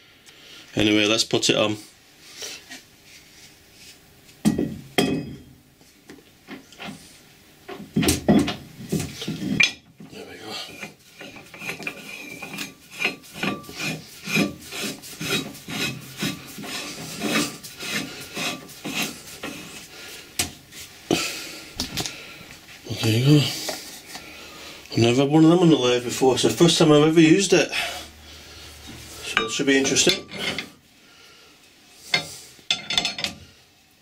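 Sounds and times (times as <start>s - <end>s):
metal threads scraping: 9.2s - 19.9s, 28.7s - 30.8s.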